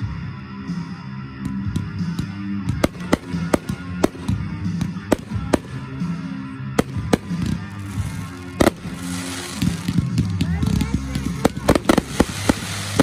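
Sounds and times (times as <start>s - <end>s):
fireworks bangs: 6.8s - 13.0s.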